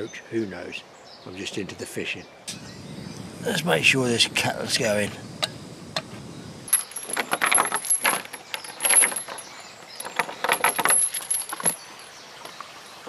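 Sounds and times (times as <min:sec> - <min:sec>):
metal chain rattling on gate: 0:06.7 - 0:12.6.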